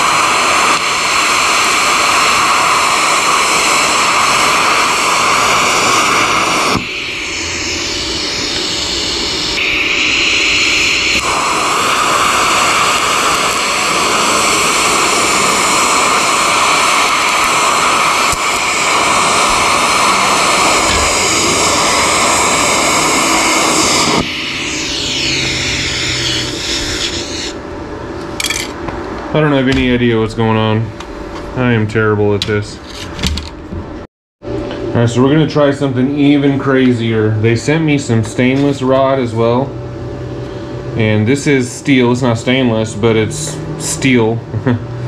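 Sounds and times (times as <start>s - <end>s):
welding arc hissing: 0.0s - 27.6s.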